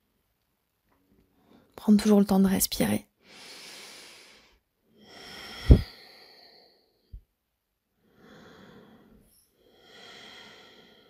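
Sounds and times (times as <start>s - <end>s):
slow breathing: 3.2s - 7.3s, 8.0s - 11.0s.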